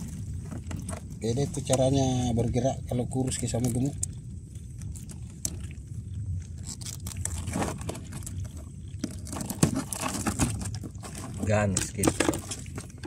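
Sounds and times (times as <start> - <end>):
steady low hum: 0.0 - 13.0
net rustling and scraping: 6.5 - 13.0.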